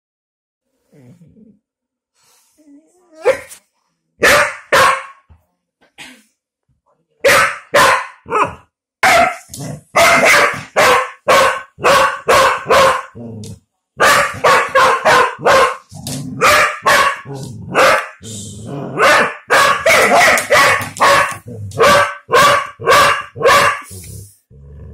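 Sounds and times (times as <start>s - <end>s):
dog barking excitedly: 4.2s - 5.2s, 7.2s - 13.3s, 14.0s - 18.2s, 18.9s - 23.9s.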